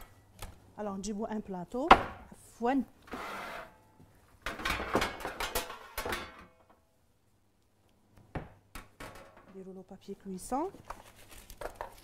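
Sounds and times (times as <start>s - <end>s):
metal baking tray clattering: 4.5s - 6.5s.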